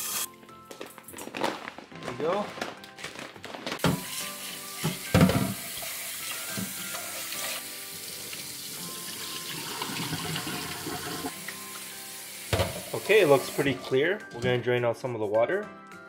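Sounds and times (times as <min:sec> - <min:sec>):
tap water running into pot: 0:03.8 - 0:13.8
knocks on metal pot: 0:12.5 - 0:12.8.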